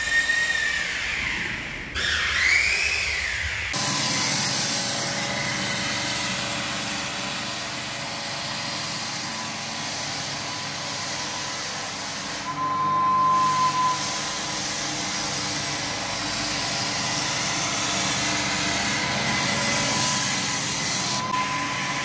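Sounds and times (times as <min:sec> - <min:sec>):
floor sander motor whine: 0:00.0 - 0:22.0
sanding belt hissing on wood: 0:03.8 - 0:12.5, 0:13.4 - 0:22.0.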